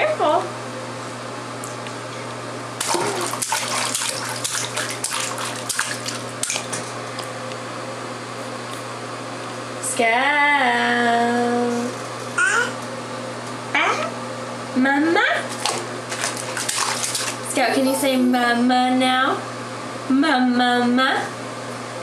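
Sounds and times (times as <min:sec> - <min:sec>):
steady low hum: 0:00.0 - 0:22.0
baby splashing bathwater: 0:02.8 - 0:07.0, 0:15.5 - 0:18.4.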